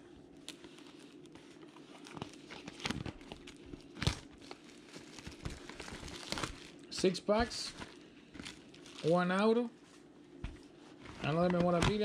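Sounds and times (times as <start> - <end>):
cellophane wrap crinkling: 0.4 - 9.6.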